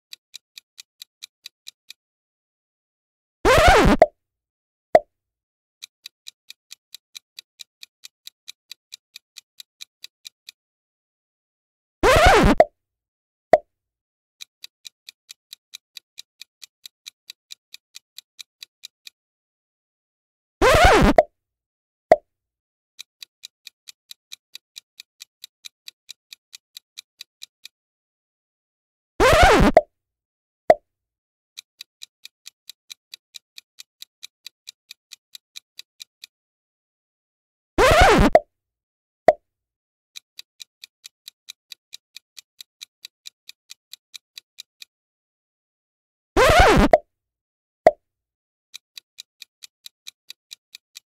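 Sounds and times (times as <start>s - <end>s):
clock-like ticking: 3.5s - 4.1s, 6.0s - 10.6s, 12.0s - 12.7s, 14.4s - 19.2s, 20.6s - 21.3s, 23.2s - 27.8s, 29.2s - 29.9s, 31.6s - 36.3s, 37.8s - 38.5s, 40.2s - 44.9s, 48.7s - 51.0s
countdown clock ticking: 3.5s - 4.1s, 12.0s - 12.7s, 20.6s - 21.3s, 29.2s - 29.9s, 37.9s - 38.5s
short blip falling in pitch: 12.1s - 12.7s.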